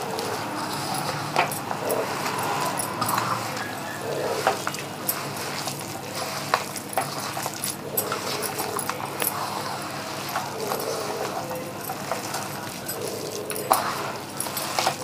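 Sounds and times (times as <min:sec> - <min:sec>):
hand mixing food rustling: 0:00.0 - 0:15.0.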